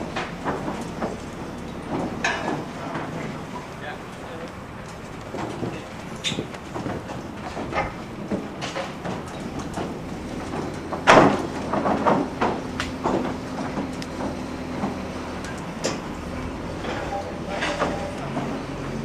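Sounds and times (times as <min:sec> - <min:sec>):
knocks and thuds of timber: 0:00.0 - 0:03.8, 0:04.5 - 0:15.2
steady low hum: 0:00.0 - 0:19.0.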